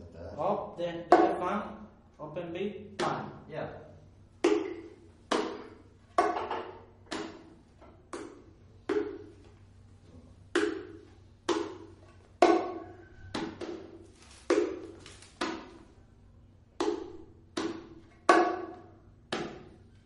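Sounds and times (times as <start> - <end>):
bongo struck by hand: 4.4 - 9.4, 10.5 - 15.8, 16.8 - 19.8.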